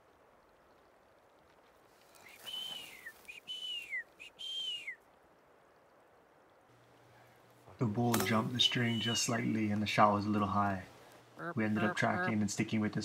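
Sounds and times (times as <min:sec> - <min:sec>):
person whistling: 0:02.4 - 0:05.0.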